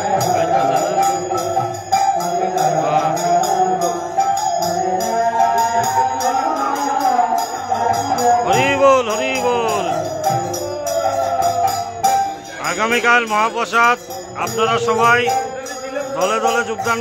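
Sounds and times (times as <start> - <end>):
group chanting: 0.0 - 12.8
small hand cymbals beating: 0.0 - 17.0.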